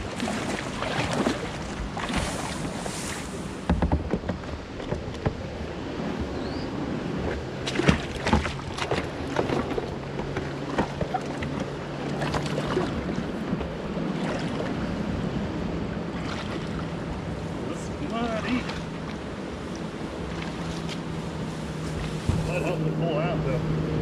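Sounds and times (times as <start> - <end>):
paddle knocks and splashes: 0.0 - 6.4, 7.2 - 14.8, 16.2 - 17.0, 18.1 - 19.3, 21.8 - 22.8
rushing water: 0.0 - 24.0
wind noise: 21.0 - 22.9.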